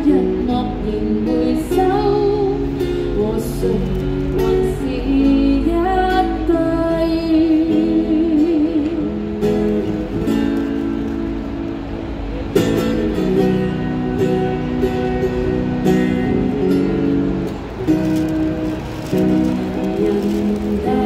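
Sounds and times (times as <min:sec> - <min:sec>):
woman singing: 0:00.0 - 0:09.4, 0:19.7 - 0:21.0
strummed acoustic guitar: 0:00.0 - 0:21.0.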